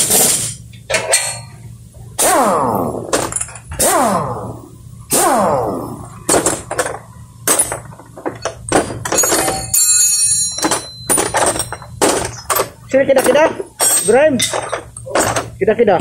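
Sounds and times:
hand tools clicking and clanking: 0:00.0 - 0:01.5, 0:03.1 - 0:04.2, 0:06.2 - 0:16.0
metal ringing: 0:00.8 - 0:01.6, 0:05.2 - 0:15.6.

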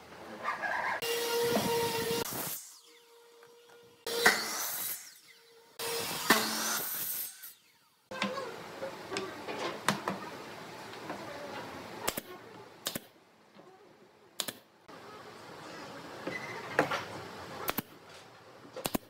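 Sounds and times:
nail gun shots: 0:06.2 - 0:07.2, 0:12.1 - 0:13.1, 0:14.4 - 0:14.6, 0:17.6 - 0:18.0, 0:18.8 - 0:19.0.

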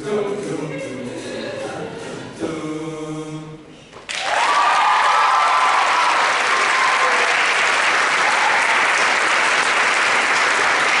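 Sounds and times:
audience applauding: 0:04.1 - 0:11.0.

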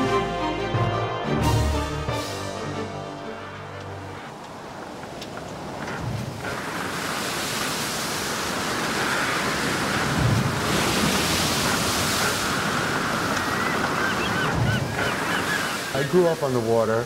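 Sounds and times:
wind: 0:01.8 - 0:17.0
rough sea surf: 0:03.2 - 0:17.0.

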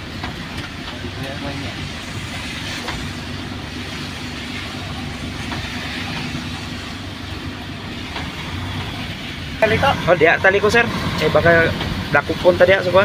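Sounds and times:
diesel truck engine running: 0:00.0 - 0:13.0
hiss of wet tyres: 0:01.4 - 0:10.0.

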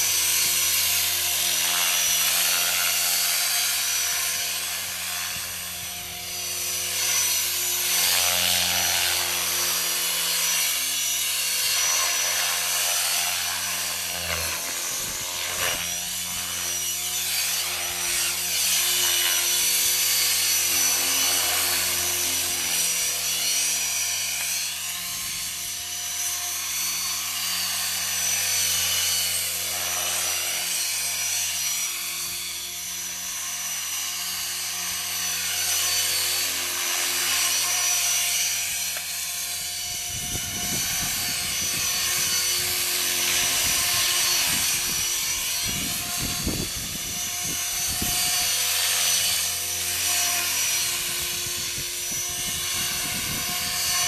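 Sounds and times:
helicopter rotor noise: 0:00.0 - 0:54.0
rc helicopter motor whine: 0:00.0 - 0:54.0.

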